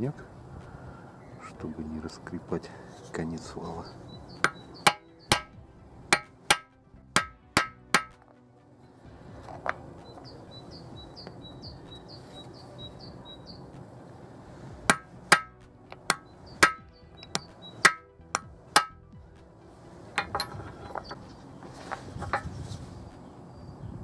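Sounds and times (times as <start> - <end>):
bird chirping: 2.8 - 5.8, 9.9 - 14.0, 16.0 - 18.2, 20.5 - 21.9, 22.9 - 24.0
hammer striking metal drift: 4.4 - 8.2, 14.9 - 19.0.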